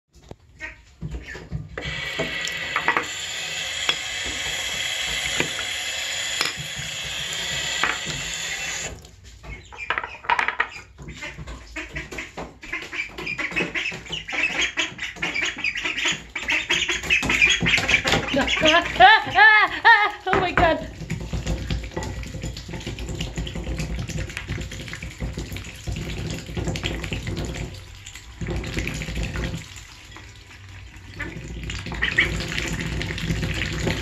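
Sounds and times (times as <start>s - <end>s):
tap running into a sink: 1.1s - 9.2s, 20.3s - 30.3s, 31.1s - 34.0s
ducklings peeping: 9.4s - 19.6s, 31.2s - 32.7s.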